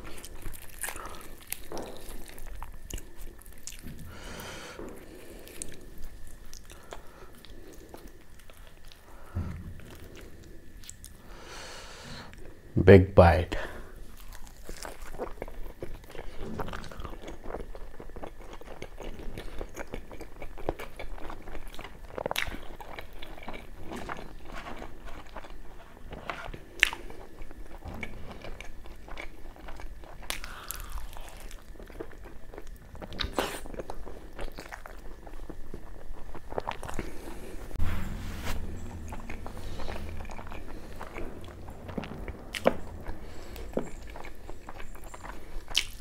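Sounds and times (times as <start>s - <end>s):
man chewing with mouth smacks: 14.0s - 37.6s, 39.9s - 46.0s.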